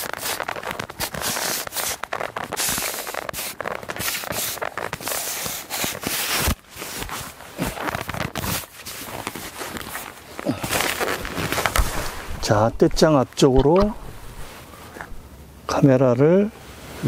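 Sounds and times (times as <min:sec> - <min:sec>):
dry reeds and clothing rustling: 0:00.0 - 0:15.8.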